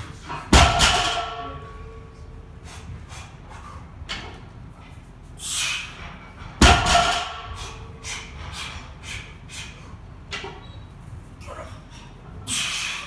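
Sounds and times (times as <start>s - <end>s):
short forceful breaths: 2.5s - 4.1s, 5.3s - 6.1s, 7.3s - 10.3s, 11.8s - 13.0s.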